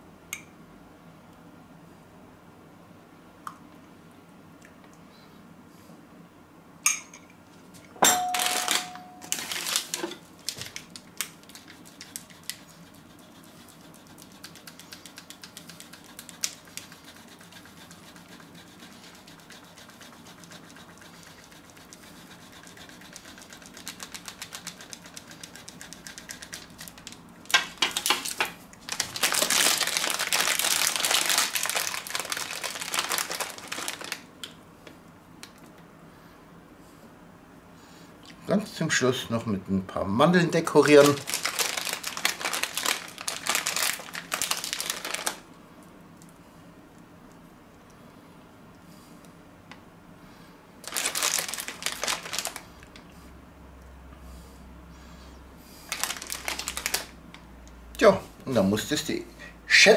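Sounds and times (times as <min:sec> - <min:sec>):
plastic bag crinkling: 0:08.4 - 0:12.3, 0:23.0 - 0:34.3, 0:40.7 - 0:45.4, 0:50.8 - 0:52.9, 0:55.9 - 0:57.2
grating on metal grater: 0:11.8 - 0:26.6.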